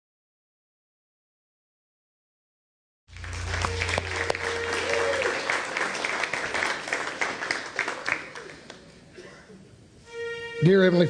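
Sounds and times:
band holding low note: 3.1s - 6.1s
congregation applauding: 3.1s - 8.9s.

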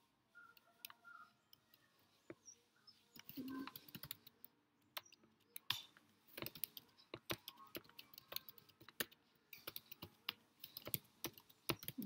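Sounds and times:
typing on computer keyboard: 3.2s - 12.0s.

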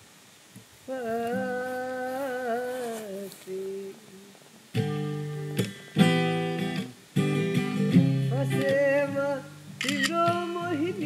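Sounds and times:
person humming: 0.9s - 4.7s
acoustic guitar strumming: 4.7s - 11.0s.

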